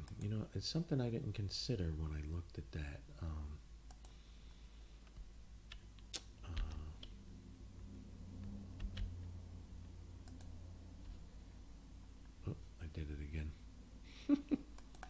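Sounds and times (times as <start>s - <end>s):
low electrical hum: 0.0s - 15.0s
keyboard and mouse clicks: 3.9s - 4.2s, 5.0s - 7.2s, 8.4s - 9.2s, 10.2s - 11.2s, 14.7s - 15.0s.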